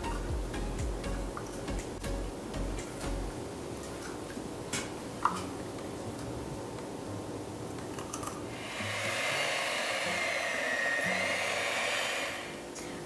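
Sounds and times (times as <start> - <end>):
electric hand mixer whipping: 8.5 - 12.8.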